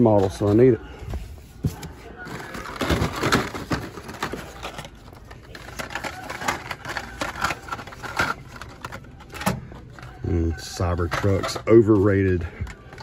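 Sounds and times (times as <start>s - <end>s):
cardboard rustling: 0.0s - 9.4s.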